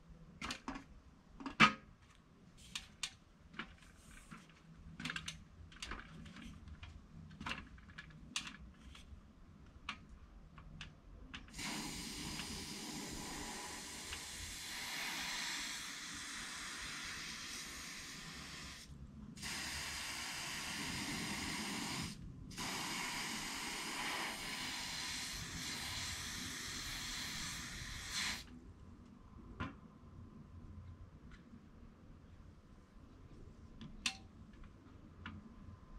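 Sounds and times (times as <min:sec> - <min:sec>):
aerosol spray can hissing: 0:11.5 - 0:28.5.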